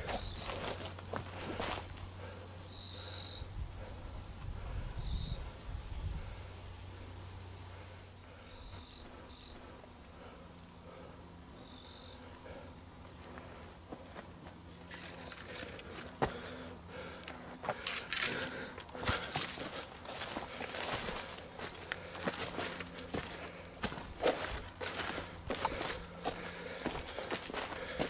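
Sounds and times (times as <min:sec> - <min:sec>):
quick pulsing insect call: 0:00.0 - 0:13.8
insect chirps: 0:00.0 - 0:28.0
insect high trill: 0:00.0 - 0:28.0.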